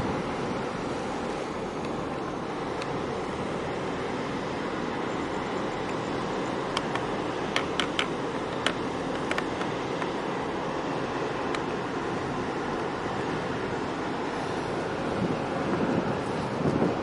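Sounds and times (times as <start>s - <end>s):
harbour water: 0.0s - 17.0s
wind: 0.0s - 17.0s
sharp clicks: 6.7s - 10.2s.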